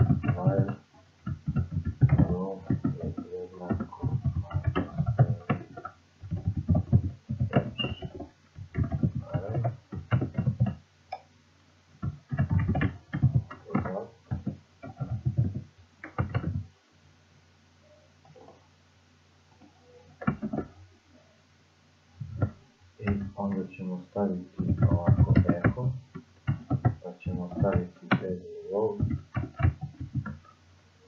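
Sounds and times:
man speaking indistinctly: 0:00.0 - 0:00.8, 0:02.0 - 0:05.8, 0:08.9 - 0:10.5, 0:13.2 - 0:15.5, 0:23.0 - 0:26.1, 0:27.0 - 0:29.2.

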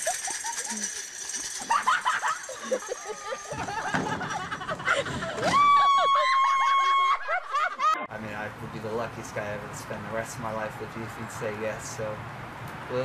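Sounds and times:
people calling out and laughing: 0:02.5 - 0:08.1
long high-pitched cry: 0:05.4 - 0:07.3.

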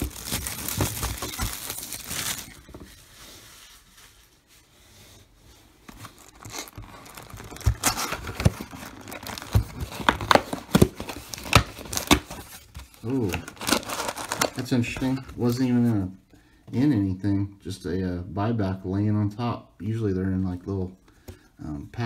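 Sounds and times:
cardboard lid tearing open: 0:00.0 - 0:02.6, 0:06.0 - 0:12.6, 0:13.2 - 0:14.6
plastic shrink-wrap crinkling: 0:00.0 - 0:04.5, 0:05.9 - 0:15.6.

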